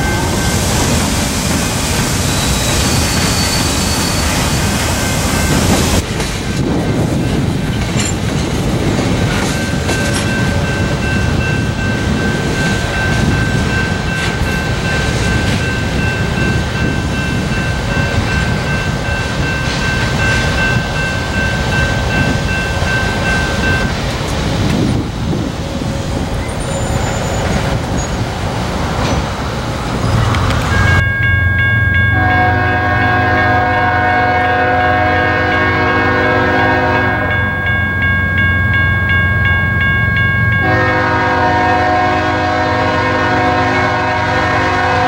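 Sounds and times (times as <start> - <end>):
freight train wheels rumbling on rail: 0.0 - 45.0
high ringing tone: 30.0 - 34.8, 37.1 - 41.1.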